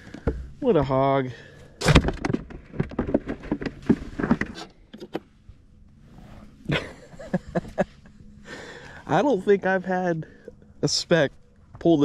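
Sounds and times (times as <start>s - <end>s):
clattering knocks and rattles: 1.8s - 5.3s.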